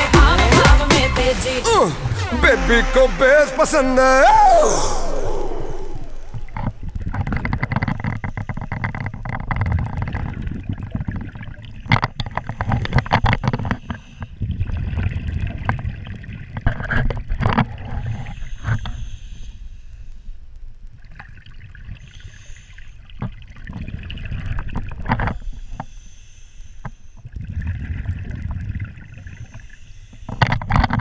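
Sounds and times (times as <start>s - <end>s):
underwater exhaled bubbles: 4.4s - 19.5s, 21.0s - 25.9s, 27.2s - 31.0s.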